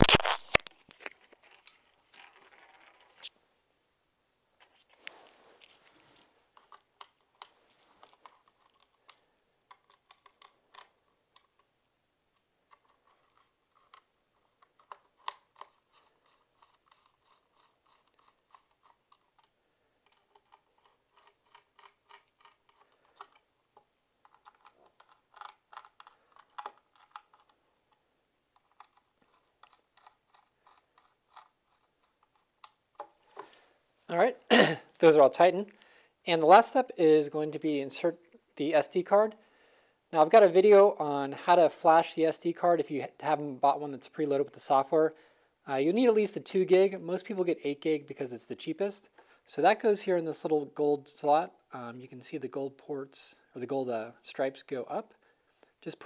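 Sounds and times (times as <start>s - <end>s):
screwdriver turning screws into plastic: 6.6s - 11.7s, 12.3s - 23.5s, 24.2s - 27.6s, 28.6s - 33.1s.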